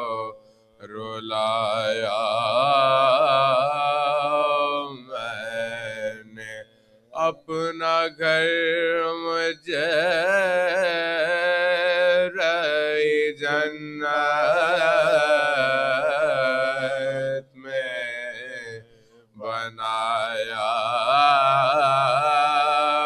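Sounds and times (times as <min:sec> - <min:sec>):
man chanting unaccompanied: 0:00.0 - 0:23.0
man breathing: 0:00.4 - 0:00.8, 0:06.7 - 0:07.1, 0:18.8 - 0:19.4.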